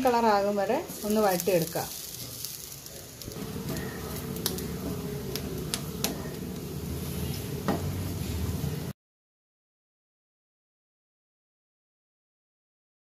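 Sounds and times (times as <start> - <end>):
spatula scraping frying pan: 0.9 - 5.4.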